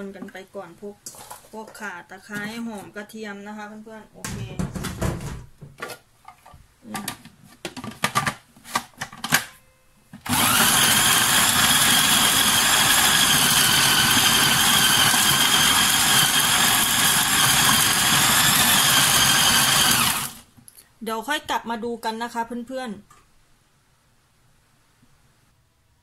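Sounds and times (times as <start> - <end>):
food processor motor whining: 10.3 - 20.5.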